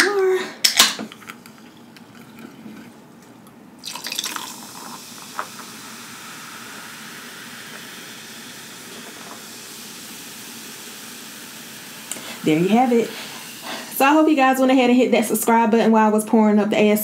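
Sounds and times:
sparkling water pouring into glass: 0:03.8 - 0:14.1
fizzing hiss: 0:03.8 - 0:14.6.

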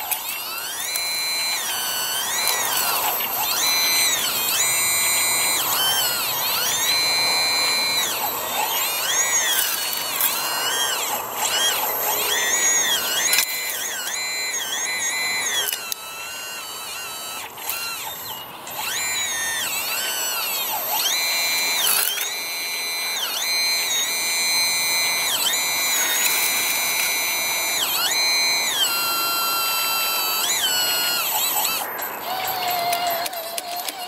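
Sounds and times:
electric motors whining: 0:00.0 - 0:34.0.

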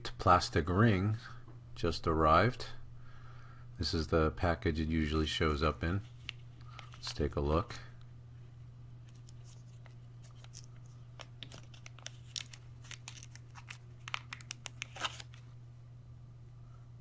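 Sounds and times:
steady low hum: 0:00.0 - 0:17.0
plastic bag crinkling: 0:09.0 - 0:15.5.

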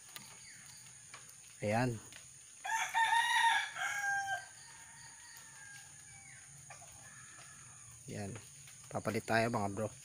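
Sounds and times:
rooster crowing: 0:02.6 - 0:08.0.

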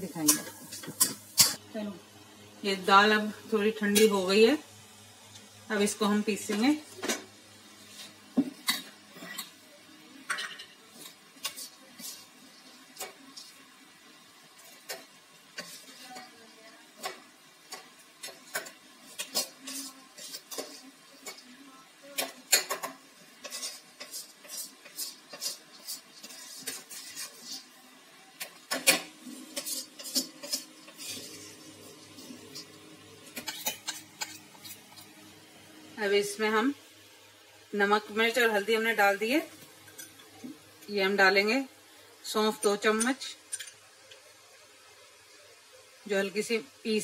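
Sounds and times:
spoon scraping and clinking on steel: 0:28.8 - 0:31.4.

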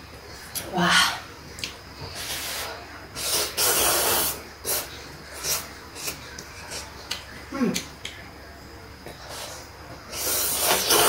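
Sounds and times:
person slurping noodles: 0:02.2 - 0:06.2, 0:09.3 - 0:11.0.

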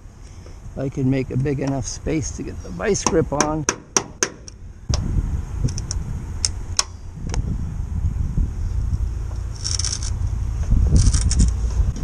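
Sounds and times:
steady low rumble: 0:00.0 - 0:12.0
small metal clicks: 0:09.5 - 0:10.2, 0:11.0 - 0:11.6
rattly metal scrape: 0:09.5 - 0:10.3, 0:10.9 - 0:11.7.

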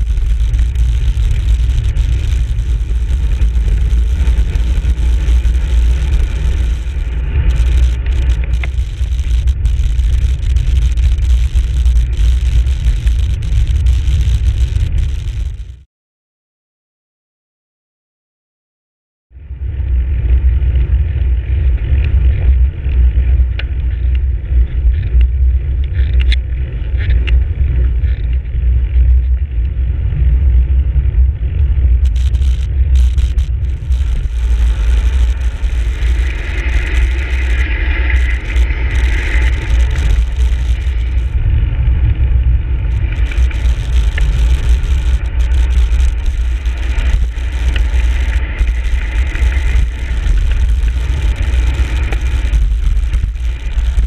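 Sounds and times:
tyre hiss on asphalt: 0:00.0 - 0:15.8, 0:32.0 - 0:41.4, 0:42.8 - 0:54.0
wind buffeting microphone: 0:00.0 - 0:15.8, 0:19.4 - 0:54.0.

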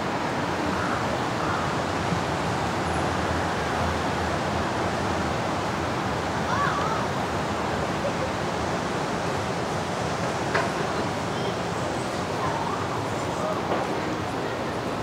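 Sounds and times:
city street noise: 0:00.0 - 0:15.0.

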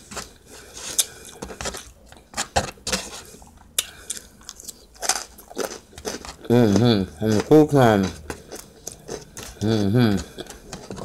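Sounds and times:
chewing: 0:03.2 - 0:11.0.

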